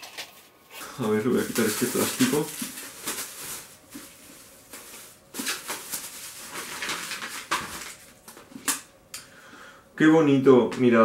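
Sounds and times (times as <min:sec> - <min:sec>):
plastic wrapping crinkling: 0:00.0 - 0:08.7.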